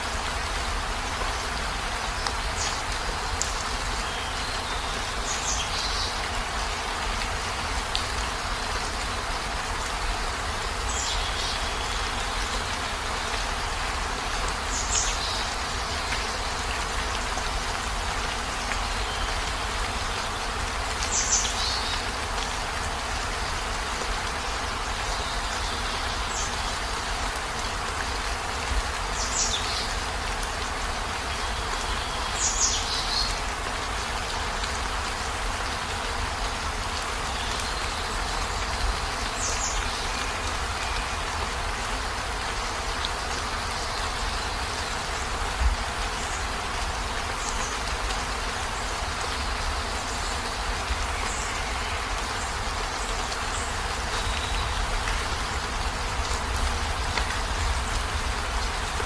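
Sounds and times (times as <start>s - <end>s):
heavy rain hissing: 0.0s - 59.0s.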